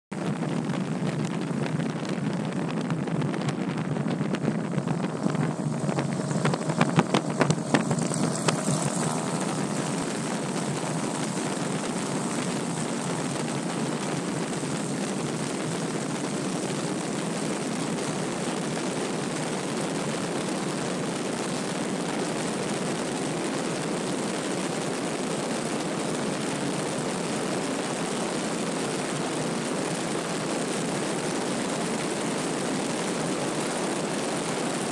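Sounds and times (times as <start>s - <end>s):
propeller plane engine at full power: 0.1s - 34.9s
wind rushing over camera: 0.1s - 34.9s.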